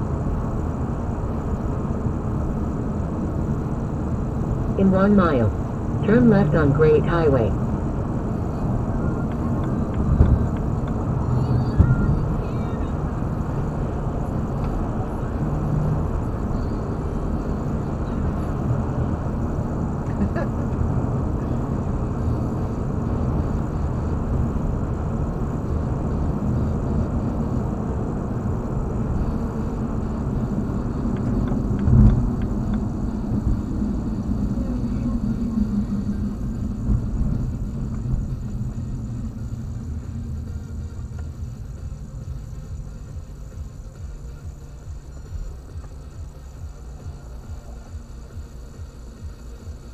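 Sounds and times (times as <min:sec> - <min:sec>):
car road and engine noise: 0:00.0 - 0:49.9.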